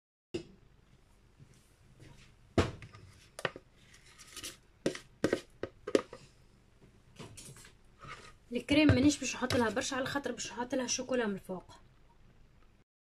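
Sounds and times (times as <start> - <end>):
utensil tapping plastic bowl: 4.8 - 6.2, 8.7 - 10.3.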